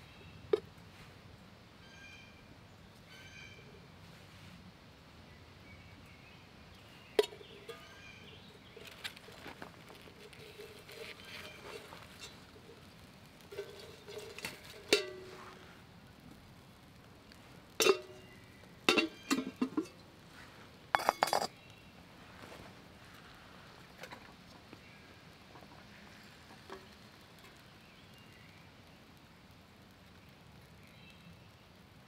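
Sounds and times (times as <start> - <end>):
metal cookware clinking: 7.2 - 8.0, 13.5 - 15.4, 17.8 - 18.3, 18.9 - 20.0, 21.0 - 21.6.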